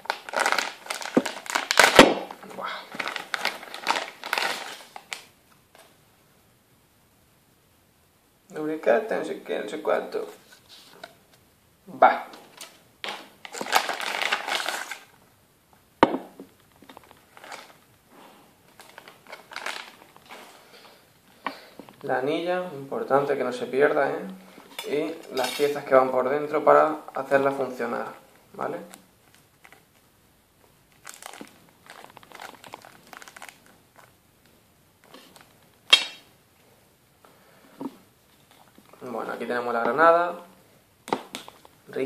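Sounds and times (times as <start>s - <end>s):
plastic bag crinkling: 0.0s - 5.3s, 12.5s - 15.2s, 16.7s - 17.9s, 18.6s - 21.0s, 28.9s - 30.0s, 30.9s - 34.2s.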